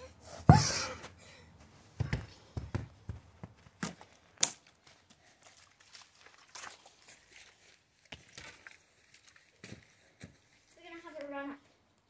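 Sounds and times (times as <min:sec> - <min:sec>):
ball thudding on turf: 0:00.5 - 0:00.8, 0:02.0 - 0:04.0.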